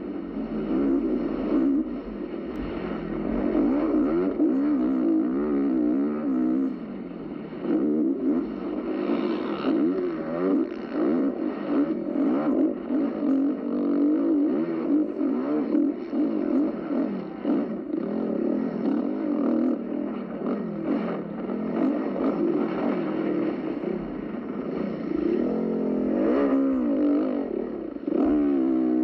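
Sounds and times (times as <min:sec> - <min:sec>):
dirt bike engine revving: 0:00.0 - 0:29.0.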